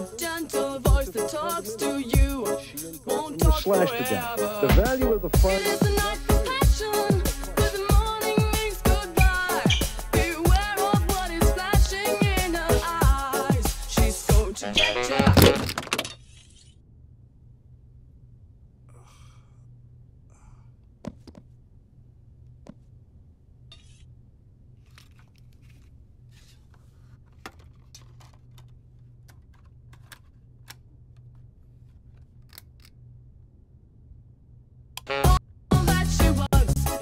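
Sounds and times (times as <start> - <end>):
music: 0.0 - 15.6, 35.0 - 37.0
refrigerated coolers humming: 0.0 - 15.8
small clicks and rustles: 24.8 - 33.0.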